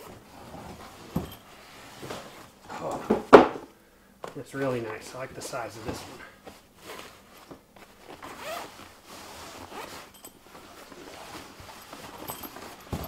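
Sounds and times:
tool bag zipper opening: 7.8s - 13.0s.

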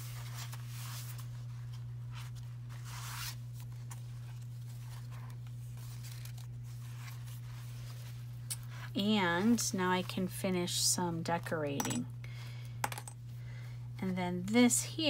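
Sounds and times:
paper rustling and sliding: 0.0s - 8.9s
steady low hum: 0.0s - 15.0s.

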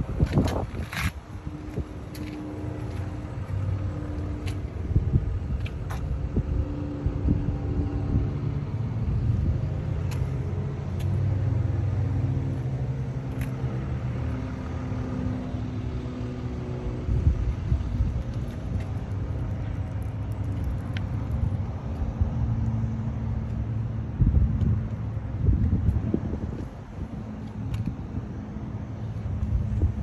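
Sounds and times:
wind buffeting microphone: 0.0s - 12.0s, 16.9s - 22.7s, 24.1s - 30.0s.

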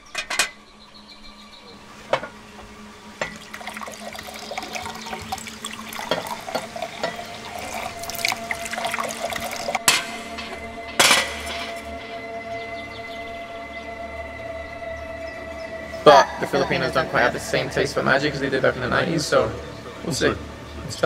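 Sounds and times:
water running and splashing: 1.8s - 12.0s.

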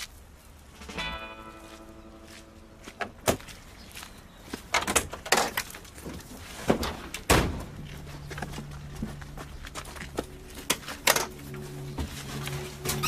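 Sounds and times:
low steady hum: 0.2s - 3.8s, 6.8s - 13.0s.

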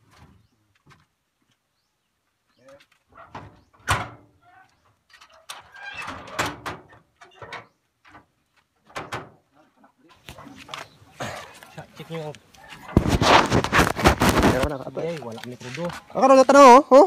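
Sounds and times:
metal gate knocks and clanks: 3.2s - 4.3s, 5.1s - 8.3s.

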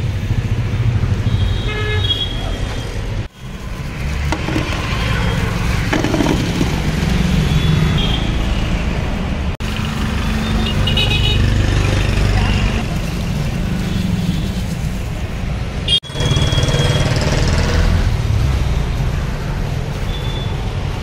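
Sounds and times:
street traffic rumbling: 0.0s - 21.0s
vehicle horns tooting: 10.4s - 11.5s.

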